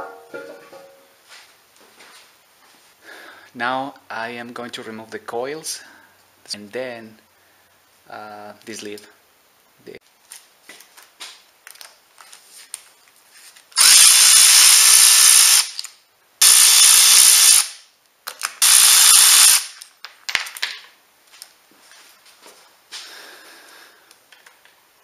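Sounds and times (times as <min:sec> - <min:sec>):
electric ratchet running: 0:13.8 - 0:17.8, 0:18.6 - 0:19.8.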